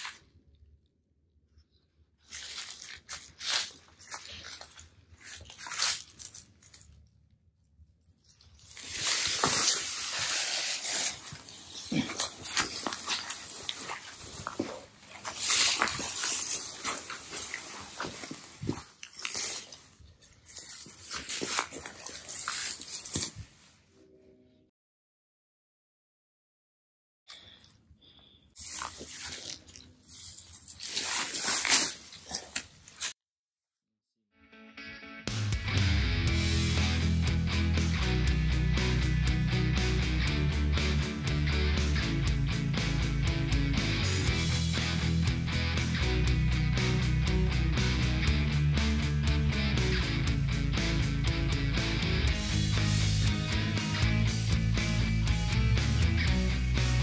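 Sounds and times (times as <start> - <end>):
rustling in dry leaves: 2.2 - 6.9, 8.4 - 23.5, 28.6 - 33.1
hiss-like scraping: 8.8 - 11.6.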